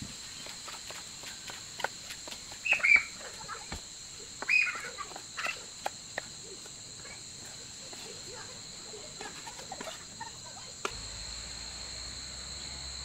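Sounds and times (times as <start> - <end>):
drone of insects: 0.0 - 13.0
bird calls: 2.6 - 5.7.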